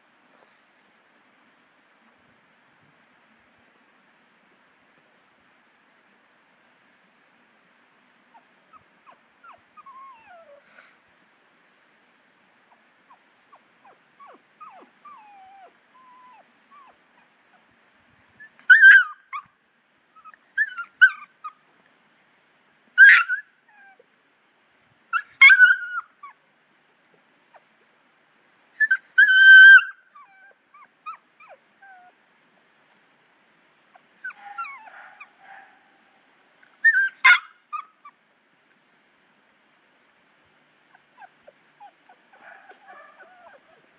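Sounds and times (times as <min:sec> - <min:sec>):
puppies whining: 0:08.7 - 0:10.6, 0:12.6 - 0:17.3, 0:20.2 - 0:21.3, 0:28.8 - 0:32.1, 0:33.8 - 0:35.3, 0:36.8 - 0:37.9, 0:40.9 - 0:43.9
puppies yelping: 0:23.0 - 0:24.0, 0:25.2 - 0:26.4, 0:28.8 - 0:32.1, 0:33.8 - 0:35.7, 0:36.8 - 0:37.9, 0:41.2 - 0:43.9.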